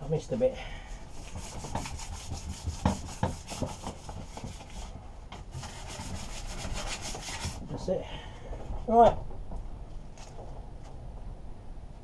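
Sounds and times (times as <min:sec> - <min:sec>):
sandpaper scraping metal tube: 0:01.1 - 0:07.7.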